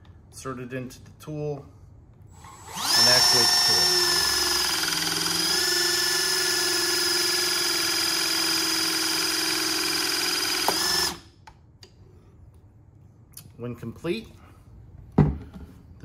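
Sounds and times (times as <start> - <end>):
motor and pump whine: 2.3 - 11.3.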